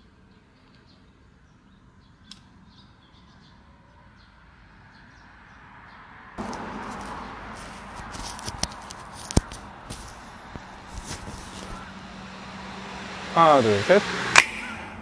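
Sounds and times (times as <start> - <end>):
rushing background noise: 6.4 - 15.0.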